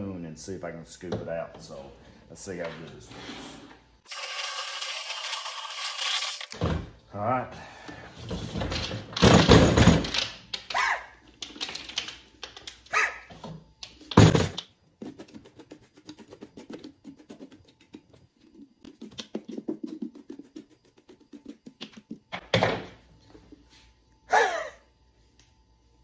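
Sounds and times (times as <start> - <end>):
short yelping bark-like calls: 10.7 - 11.2, 12.9 - 13.3.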